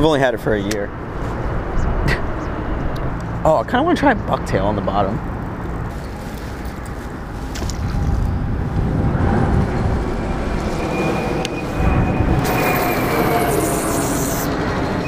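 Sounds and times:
wind: 0.0s - 15.0s
faint thin whine: 9.8s - 15.0s.

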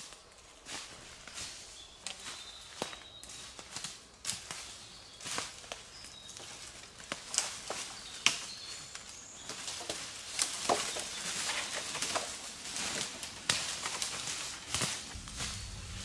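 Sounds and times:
branches cracking and clattering: 0.0s - 16.0s
footsteps crunching dry leaves: 0.0s - 16.0s
leaves rustling: 0.0s - 16.0s.

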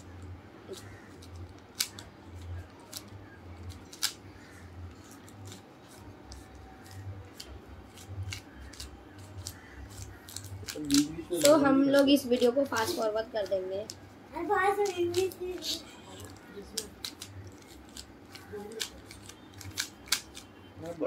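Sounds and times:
puzzle cube clicking: 0.7s - 4.2s, 5.0s - 12.5s, 14.8s - 20.5s.

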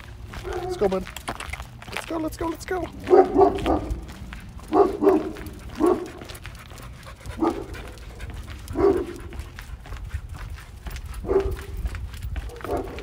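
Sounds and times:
dog barking: 3.0s - 4.0s, 4.6s - 6.3s, 7.4s - 9.3s, 11.2s - 11.8s, 12.5s - 13.0s.

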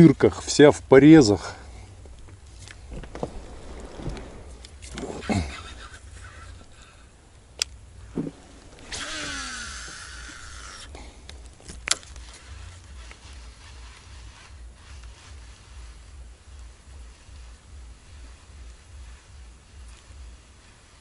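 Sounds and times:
fishing reel whirring: 8.8s - 11.0s.

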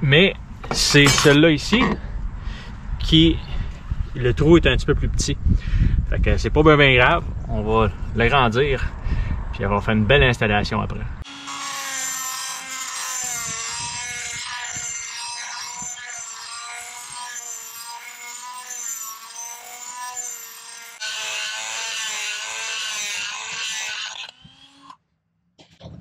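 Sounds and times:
rotary tool grinding metal: 11.2s - 25.0s.

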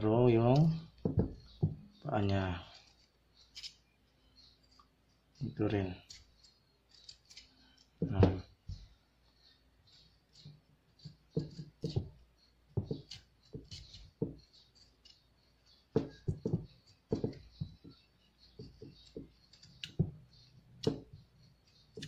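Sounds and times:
knife cutting raw vegetable: 12.8s - 14.4s.

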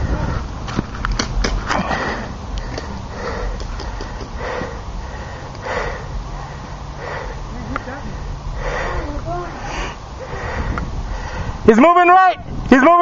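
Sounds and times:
person breathing heavily: 1.7s - 11.7s.

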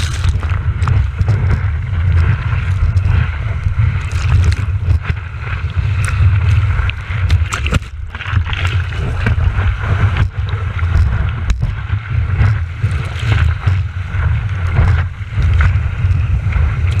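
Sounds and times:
wind rumble on camera: 0.0s - 17.0s.

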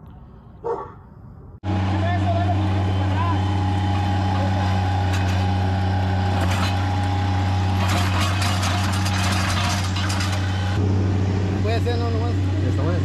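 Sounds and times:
loader engine running: 1.6s - 13.0s
trencher chain clattering through soil: 6.3s - 10.8s.

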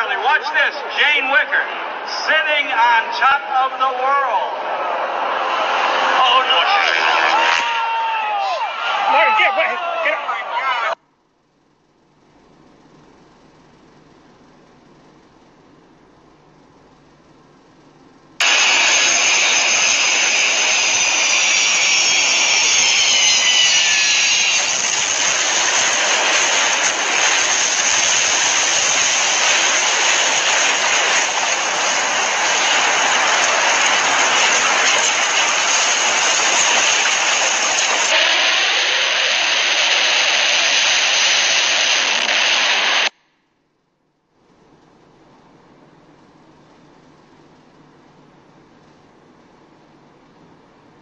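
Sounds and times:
high whine falling in pitch: 0.0s - 10.1s, 18.4s - 43.1s
jet engine roar: 0.0s - 10.6s, 18.4s - 43.1s.

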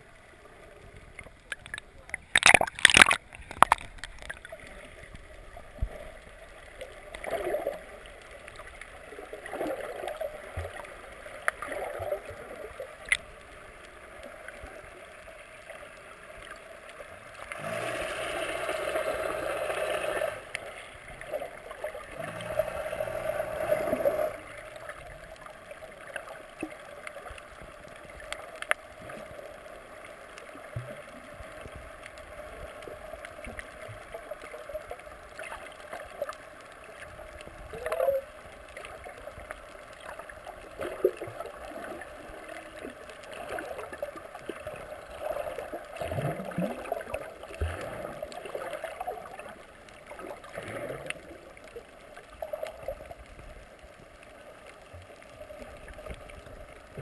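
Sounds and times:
muffled underwater water noise: 0.0s - 57.0s
water rushing: 0.0s - 57.0s
small clicks: 1.0s - 9.0s, 12.9s - 17.6s, 23.7s - 44.8s.

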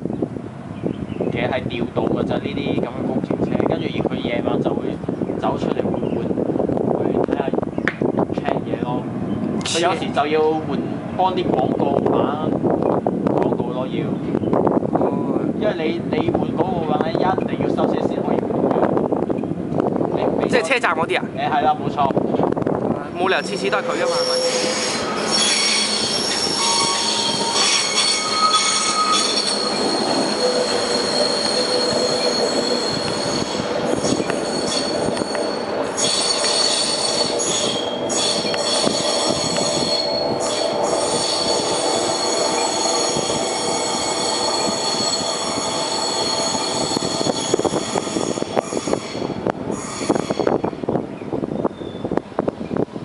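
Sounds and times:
train rumble: 0.0s - 53.0s
train wheels squealing: 23.2s - 50.8s.

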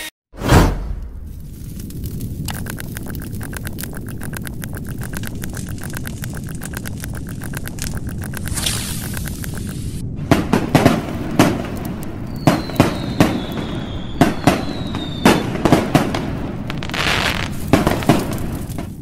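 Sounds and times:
low rumble: 0.5s - 19.0s
fireworks bangs and pops: 5.3s - 19.0s
falling firework whistle: 12.3s - 15.9s.

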